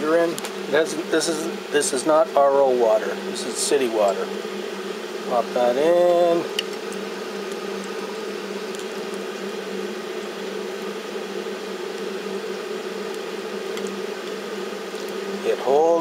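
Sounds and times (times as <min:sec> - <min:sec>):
even hiss: 0:00.0 - 0:16.0
low mechanical hum: 0:00.0 - 0:16.0
faint ticks: 0:08.6 - 0:09.3.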